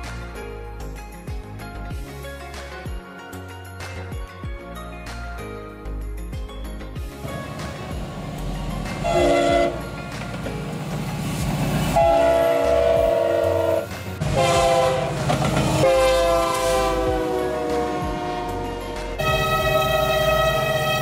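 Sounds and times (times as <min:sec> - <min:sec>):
low rumble of moving train: 0:07.0 - 0:21.0
locomotive air horn blasts: 0:09.0 - 0:10.0, 0:11.9 - 0:21.0.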